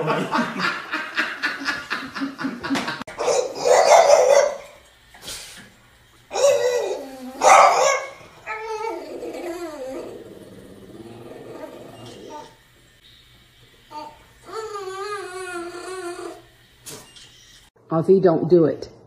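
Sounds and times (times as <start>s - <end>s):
person laughing: 0.0s - 3.0s
dog barking: 3.2s - 4.8s, 6.3s - 8.2s
dog whining howls: 6.3s - 10.4s, 14.0s - 16.5s.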